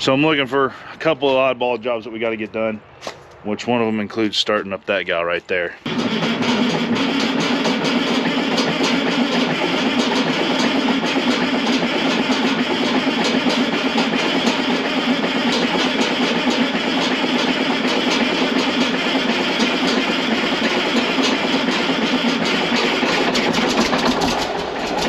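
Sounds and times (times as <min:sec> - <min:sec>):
tractor diesel engine running: 0:05.6 - 0:25.0.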